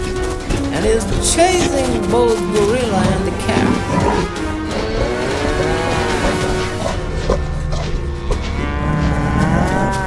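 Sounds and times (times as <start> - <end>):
background music with drone: 0.0 - 10.0
cow mooing: 3.4 - 10.0.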